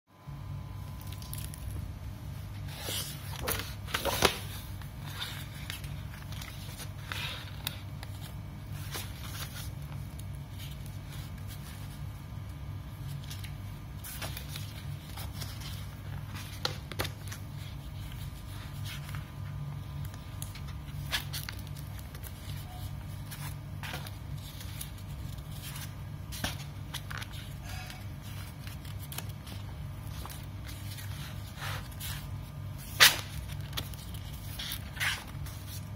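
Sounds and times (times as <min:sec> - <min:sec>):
steady low hum: 0:00.1 - 0:35.9
heavy paper sheets crackling: 0:12.9 - 0:35.9.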